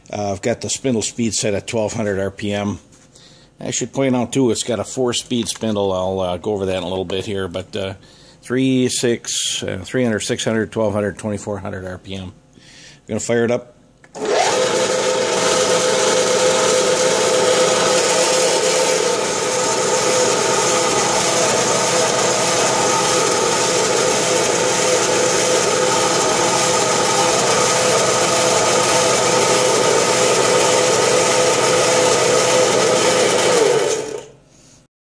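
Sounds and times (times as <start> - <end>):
lathe motor hum and whine: 14.2 - 34.3.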